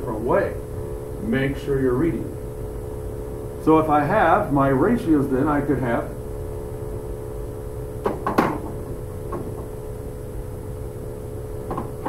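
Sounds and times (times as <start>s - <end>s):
electrical room hum: 0.0s - 12.0s.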